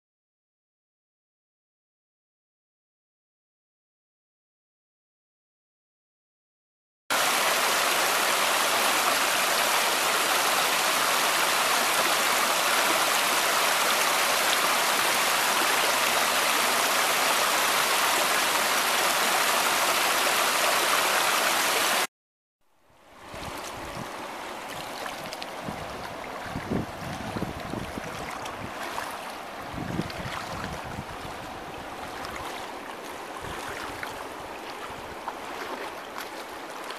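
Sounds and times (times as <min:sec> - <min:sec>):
river water lapping at shore: 0:07.1 - 0:22.1, 0:23.0 - 0:36.9
wind rumbling on microphone: 0:23.2 - 0:32.6, 0:33.4 - 0:35.3
brook rushing over stones: 0:23.3 - 0:36.9.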